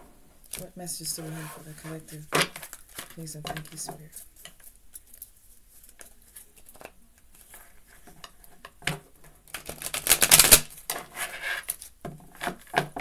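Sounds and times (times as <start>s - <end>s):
cards clicking and rustling: 9.5s - 11.0s
cards fluttering: 9.6s - 10.8s.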